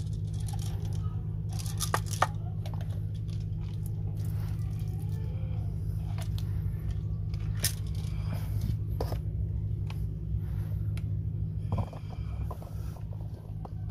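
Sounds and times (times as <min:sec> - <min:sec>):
steady low hum: 0:00.0 - 0:13.9.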